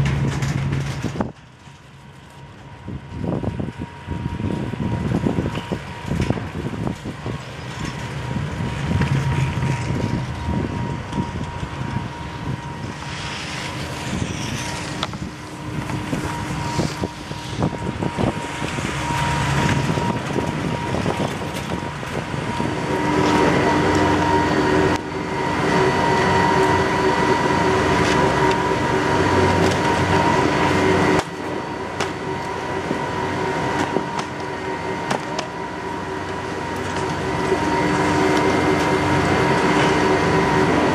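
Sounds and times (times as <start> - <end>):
machinery whine: 0.0 - 40.9
chairlift clattering over sheaves: 12.9 - 40.9.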